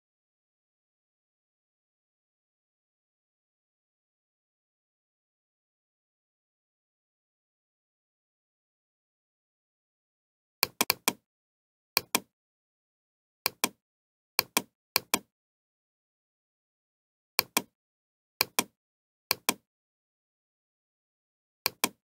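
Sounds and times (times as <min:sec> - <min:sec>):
computer mouse button clicking: 0:10.6 - 0:11.2, 0:12.0 - 0:12.3, 0:13.5 - 0:13.8, 0:14.4 - 0:15.3, 0:17.4 - 0:17.7, 0:18.4 - 0:19.6, 0:21.7 - 0:22.0.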